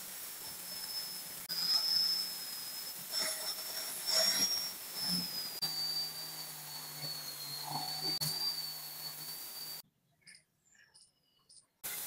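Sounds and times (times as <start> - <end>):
angle grinder whining: 0.0 - 9.8
metal sanding hiss: 0.0 - 9.8.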